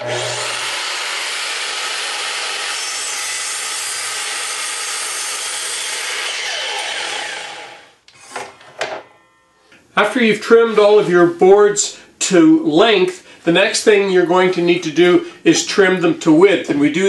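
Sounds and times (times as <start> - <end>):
miter saw cutting wood: 0.0 - 8.5.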